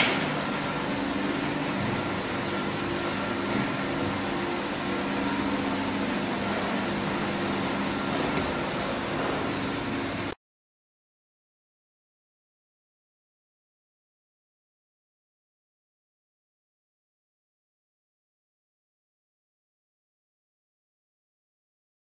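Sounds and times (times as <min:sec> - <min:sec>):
factory machinery drone: 0:00.0 - 0:10.4.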